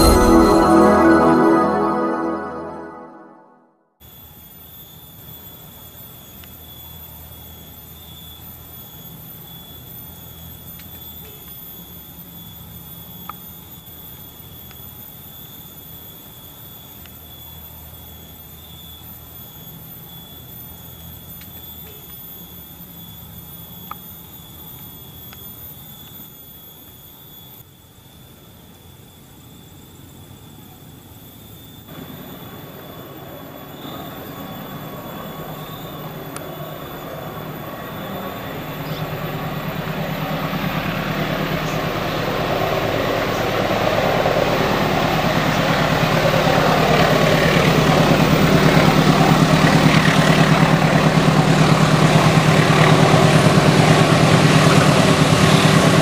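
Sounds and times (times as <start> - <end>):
insects droning shrilly: 31.1 - 55.7.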